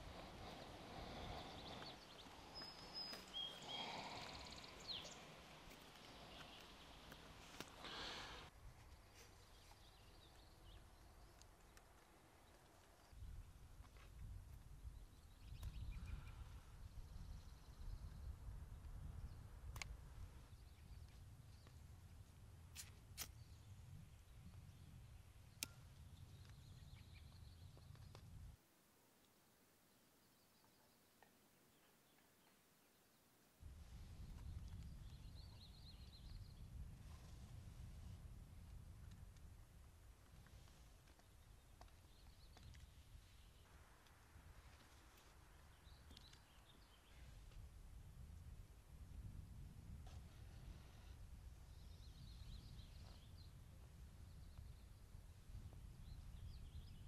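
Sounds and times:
faint low wind rumble: 0.0s - 28.6s, 33.6s - 57.0s
faint outdoor ambience: 0.0s - 57.0s
bird chirps: 0.1s - 7.2s.

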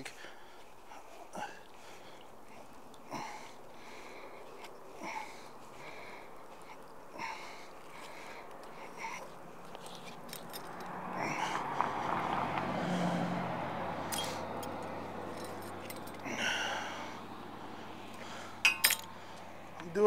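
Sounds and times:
car passing: 0.0s - 20.0s
light metallic clinks: 9.7s - 11.0s, 14.1s - 16.3s, 18.6s - 19.4s.

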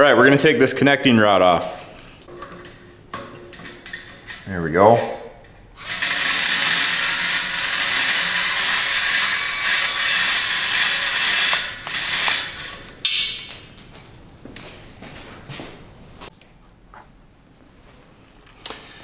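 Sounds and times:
power tool spinning nut: 5.6s - 12.9s.

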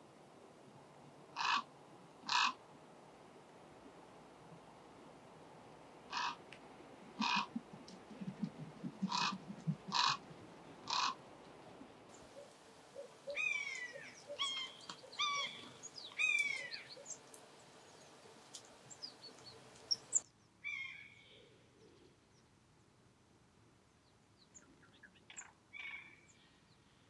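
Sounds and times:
buzzard mewing calls: 1.4s - 1.7s, 2.3s - 2.6s, 6.1s - 6.4s, 7.2s - 10.2s, 10.8s - 11.2s, 12.2s - 17.3s
small chirps and ticks: 12.1s - 20.3s.

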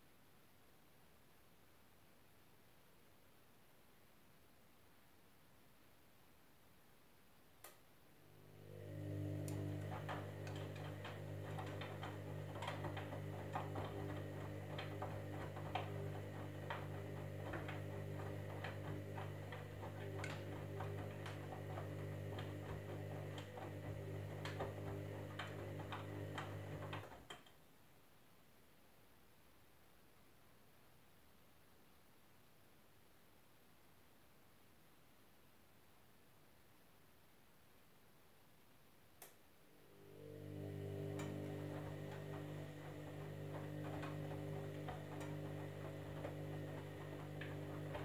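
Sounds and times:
washing machine motor humming: 8.2s - 27.3s, 39.7s - 48.0s
clicks from tumbling wash: 8.9s - 27.5s, 40.5s - 48.0s.

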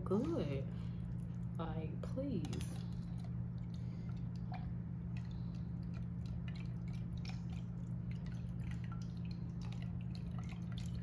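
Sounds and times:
steady low hum: 0.0s - 11.0s
wet squishes and drips: 2.4s - 11.0s.

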